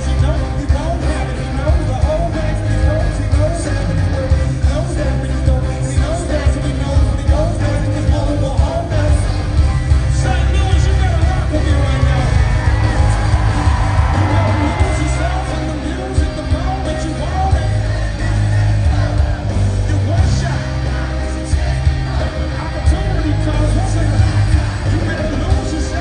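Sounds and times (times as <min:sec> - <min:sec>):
live band music: 0:00.0 - 0:26.0
man singing lead vocal: 0:00.0 - 0:26.0
crowd yelling and whooping: 0:09.0 - 0:26.0.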